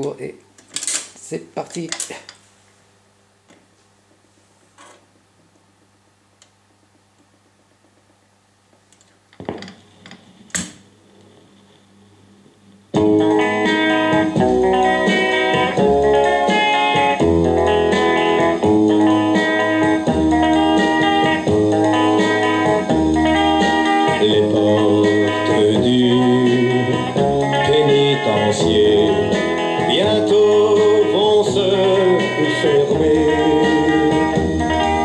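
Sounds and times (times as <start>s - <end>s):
guitar-led music through loudspeakers: 12.9s - 35.0s.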